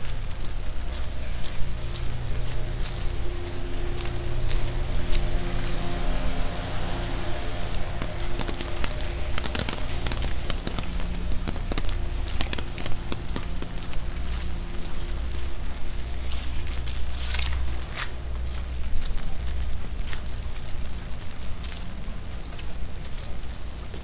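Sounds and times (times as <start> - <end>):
rain on wet street: 0.0 - 24.0
vehicle engine humming: 0.0 - 24.0
raindrops tapping: 7.0 - 24.0.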